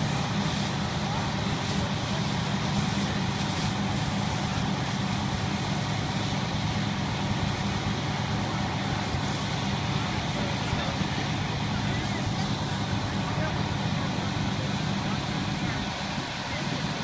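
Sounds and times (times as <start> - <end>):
diesel engine running: 0.0 - 17.0.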